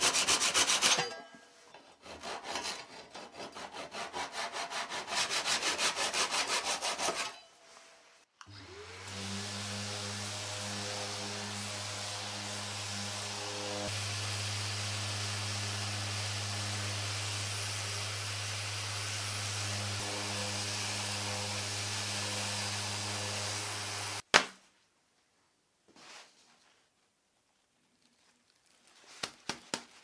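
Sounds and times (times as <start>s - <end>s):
orbital sander on plywood: 8.5s - 24.2s.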